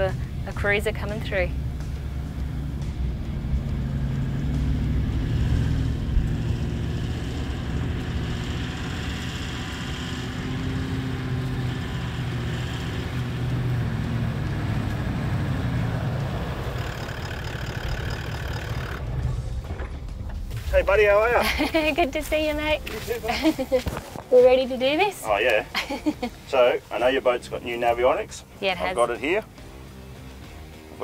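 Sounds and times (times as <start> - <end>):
truck engine running: 0.0 - 31.0.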